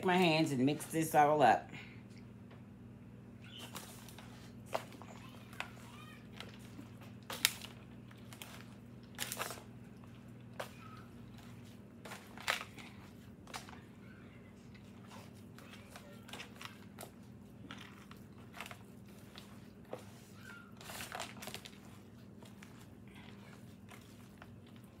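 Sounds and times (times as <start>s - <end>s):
steady low hum: 0.0s - 20.8s
foil pan crinkling and crunching: 3.5s - 25.0s.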